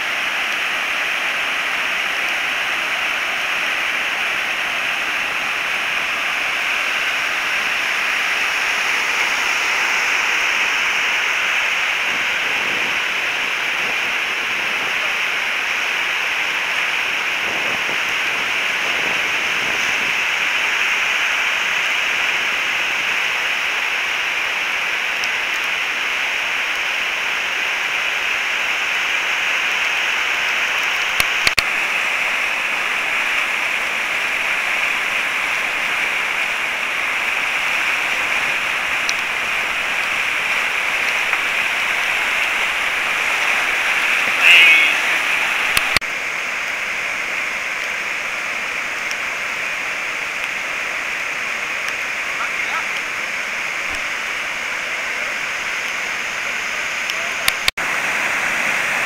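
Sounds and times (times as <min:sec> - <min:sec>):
roar of river rapids: 0:00.0 - 0:59.0.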